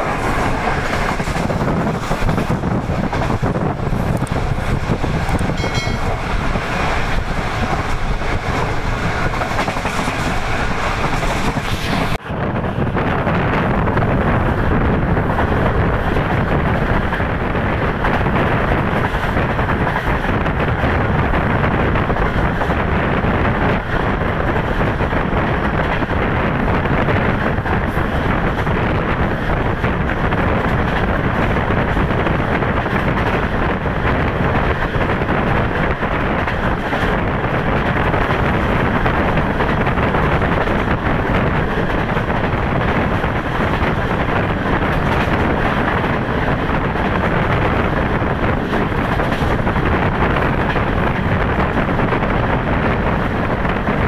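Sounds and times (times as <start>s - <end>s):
train wheels rumbling on rails: 0.0s - 54.0s
wind rushing at window: 0.0s - 54.0s.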